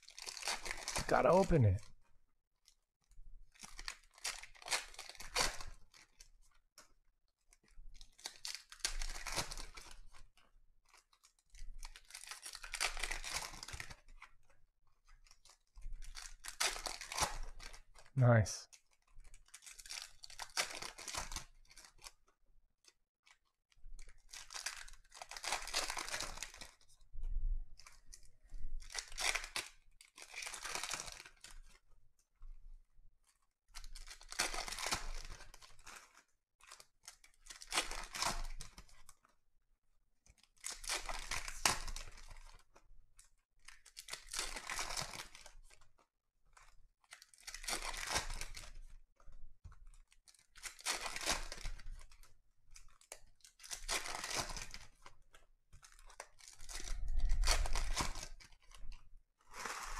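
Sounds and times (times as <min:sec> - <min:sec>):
wrappers crinkling: 0:24.0 - 0:26.8, 0:55.9 - 0:59.9
foil packs tearing: 0:59.5 - 0:59.9.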